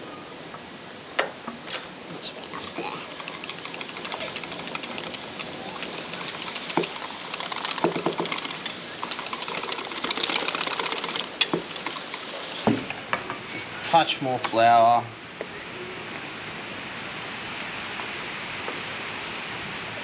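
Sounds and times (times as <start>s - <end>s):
whisk clicking in metal bowl: 2.9s - 12.5s.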